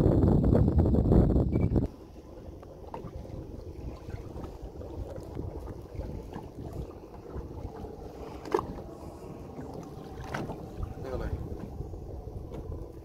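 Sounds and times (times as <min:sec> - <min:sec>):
wind buffeting the microphone: 0:00.0 - 0:13.0
water washing around a hull: 0:01.9 - 0:13.0.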